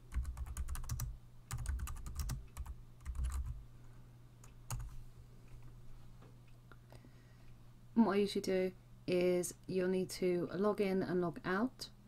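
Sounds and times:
typing on computer keyboard: 0.1 - 3.6, 4.7 - 4.9.

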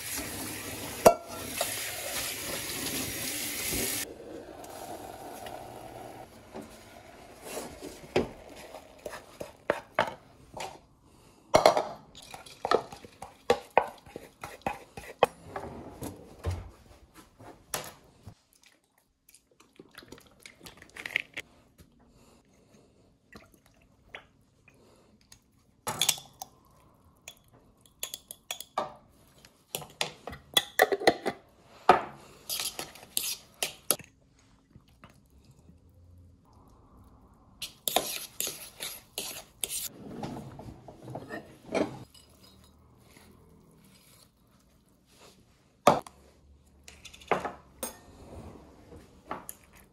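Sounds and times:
fork scraping in plastic bowl: 37.6 - 40.0.

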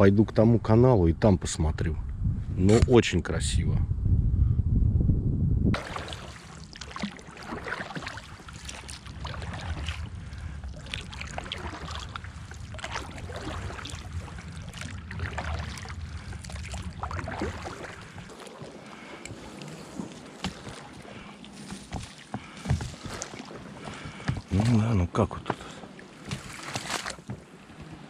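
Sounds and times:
steady low rumble: 0.0 - 23.2
water dripping: 5.8 - 24.7
paddle splashing through water: 5.8 - 28.0.

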